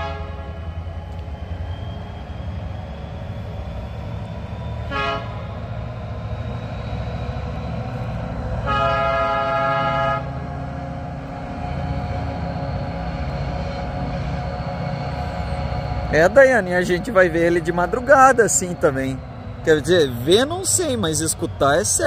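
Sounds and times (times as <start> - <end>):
train horn: 0.0 - 0.7, 4.9 - 5.4, 8.6 - 10.7
train rumbling past: 0.0 - 22.0.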